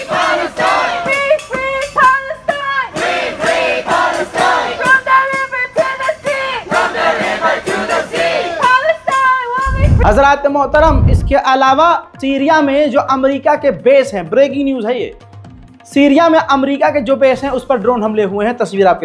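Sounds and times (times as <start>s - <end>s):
crowd chanting slogans: 0.0s - 1.2s, 2.8s - 5.1s, 5.8s - 8.8s.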